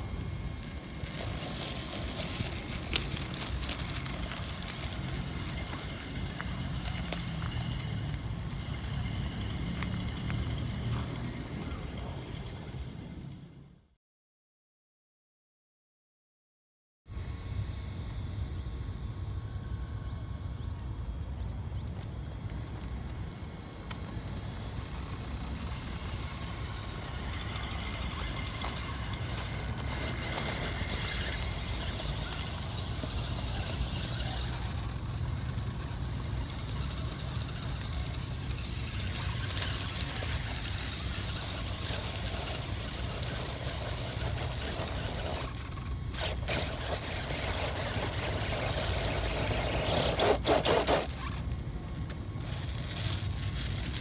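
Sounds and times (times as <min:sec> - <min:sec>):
electric motor and gear whine: 0:00.0 - 0:13.9, 0:17.1 - 0:54.0
stones crunching under tyres: 0:00.5 - 0:11.0, 0:24.8 - 0:54.0.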